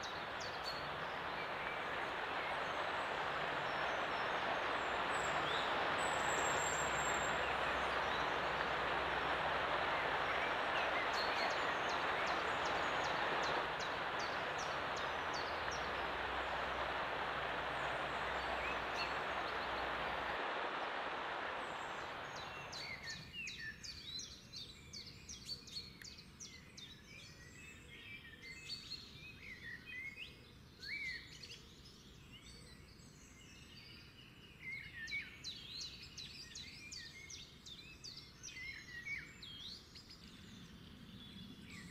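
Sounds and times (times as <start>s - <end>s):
small birds chirping: 0.0s - 20.4s, 21.4s - 24.4s
stream rushing over rocks: 0.0s - 23.2s.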